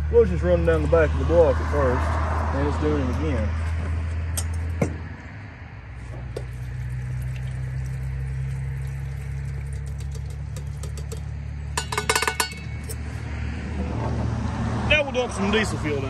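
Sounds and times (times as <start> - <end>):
liquid trickling into funnel: 6.2 - 12.8.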